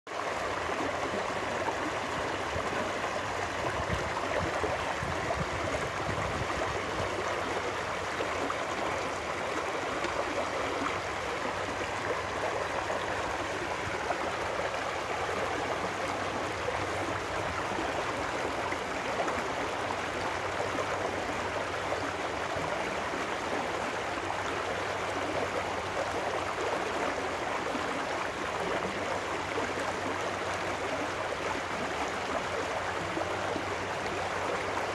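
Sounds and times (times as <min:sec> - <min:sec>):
stream rushing over rocks: 0:00.1 - 0:34.9.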